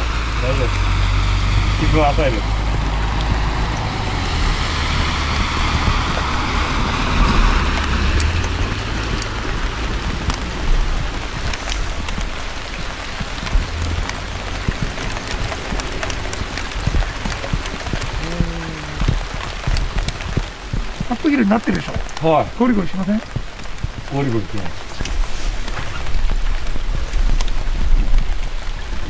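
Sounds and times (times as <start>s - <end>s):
truck passing: 0.0s - 20.7s
light rain pattering: 0.0s - 29.0s
low rumble: 0.0s - 29.0s
sharp ticks of raindrops: 0.0s - 29.0s.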